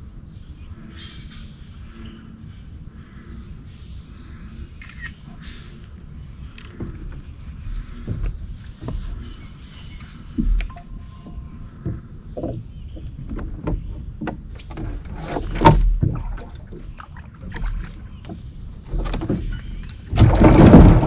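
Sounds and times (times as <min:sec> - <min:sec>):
knocks of boat being handled: 0:06.7 - 0:21.0.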